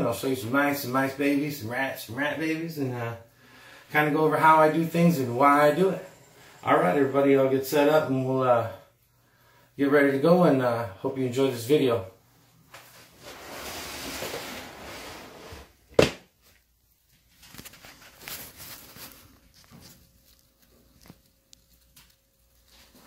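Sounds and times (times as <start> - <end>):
soft rustling: 12.3 - 15.8, 16.4 - 23.0.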